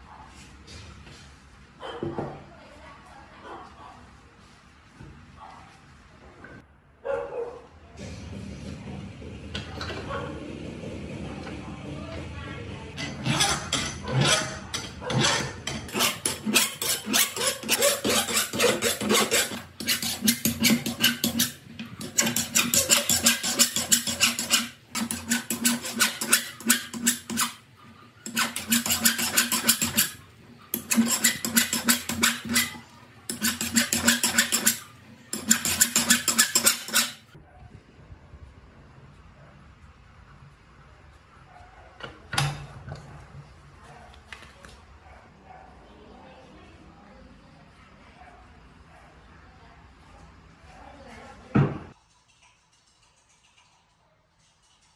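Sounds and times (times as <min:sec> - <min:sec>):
hand file rasping on steel: 0:13.0 - 0:37.4.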